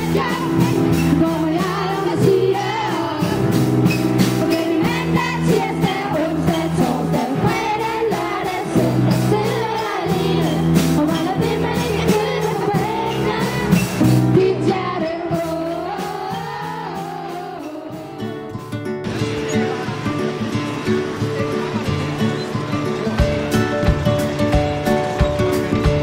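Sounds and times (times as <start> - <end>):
children singing together: 0.0 - 3.6, 4.4 - 18.5
drum kit: 0.0 - 26.0
keyboards: 0.0 - 26.0.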